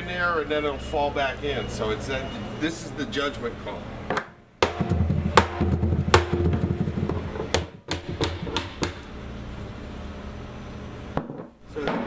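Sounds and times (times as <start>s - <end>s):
hammer striking metal: 4.2s - 6.6s.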